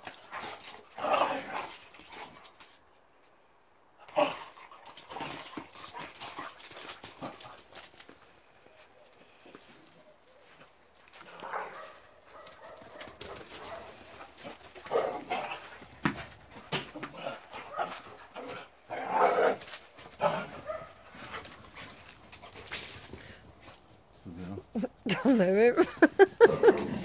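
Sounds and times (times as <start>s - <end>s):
dogs barking: 11.5s - 14.2s, 20.2s - 21.0s.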